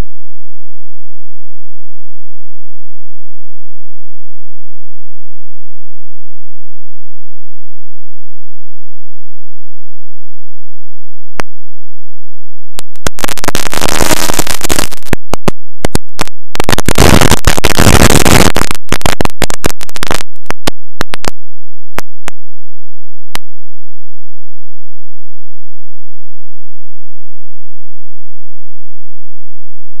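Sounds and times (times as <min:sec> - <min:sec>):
bursts of harsh noise: 0:12.8 - 0:21.4
sharp clicks: 0:12.8 - 0:21.4.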